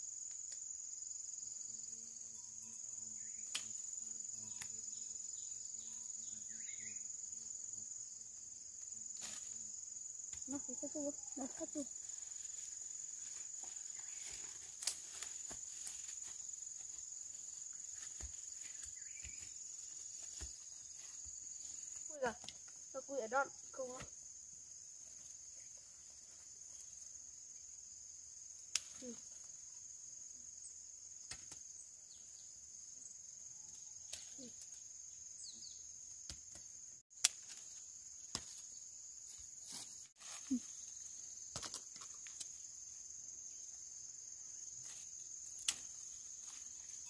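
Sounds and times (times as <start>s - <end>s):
high-pitched insect chorus: 0.0s - 47.0s.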